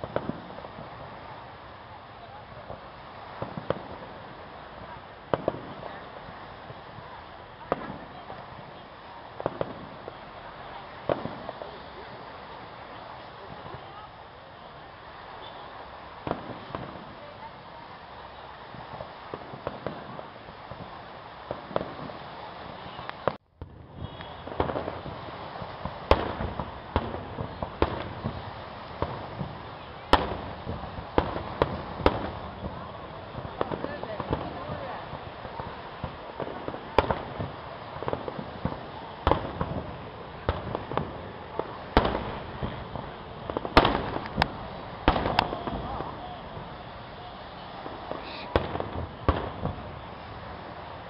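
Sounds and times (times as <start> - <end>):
crackling pops: 0.0 - 1.2, 2.6 - 12.3, 15.4 - 17.4, 18.7 - 51.0
steady background noise: 0.0 - 51.0
firework shells bursting: 18.8 - 50.6.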